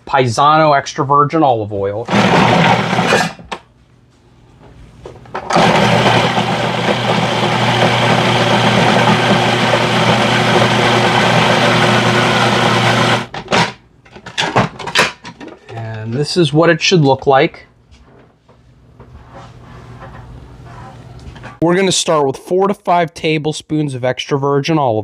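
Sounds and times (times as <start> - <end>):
food processor motor running: 2.1 - 3.4, 5.4 - 13.3.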